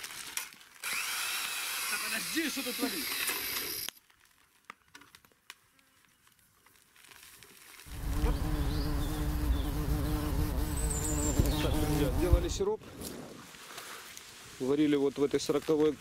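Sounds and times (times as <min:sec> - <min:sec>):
low buzzing hum: 0:07.9 - 0:12.6.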